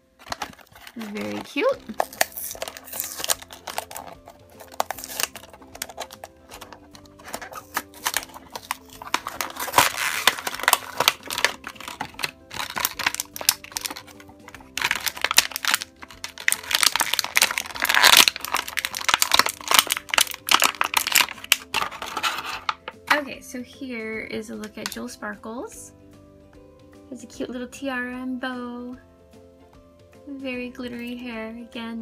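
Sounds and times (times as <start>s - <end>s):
plastic packaging crinkling and tearing: 0.0s - 22.9s
light background music: 0.0s - 32.0s.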